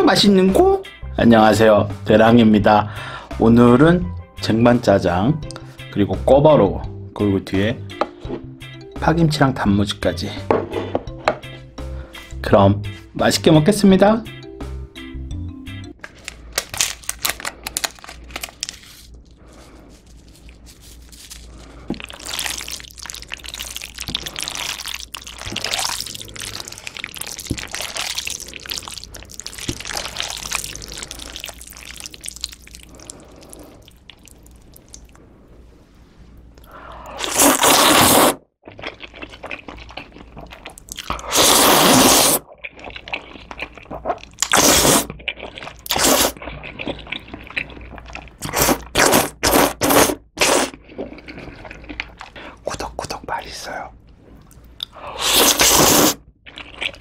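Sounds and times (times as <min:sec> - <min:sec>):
wet sticky noodle squelches: 0:19.5 - 0:35.2
loud noodle slurps: 0:37.1 - 0:38.4, 0:41.2 - 0:42.5, 0:44.4 - 0:45.1, 0:45.8 - 0:47.8, 0:48.4 - 0:52.0, 0:55.1 - 0:56.2.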